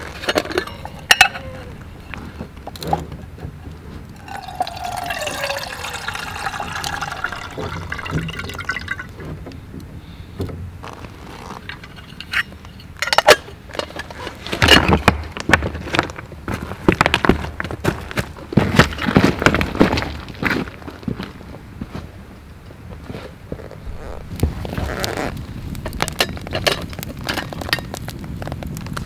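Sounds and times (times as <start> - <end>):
liquid pouring into container: 4.2 - 9.2.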